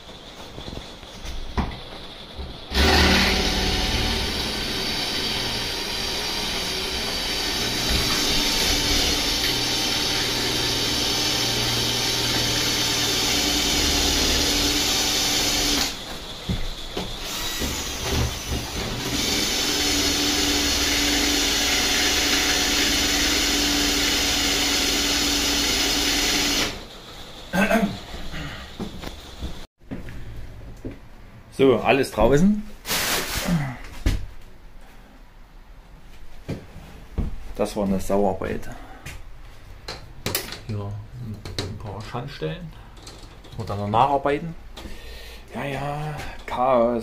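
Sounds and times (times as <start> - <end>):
power tool whining: 2.7 - 26.9.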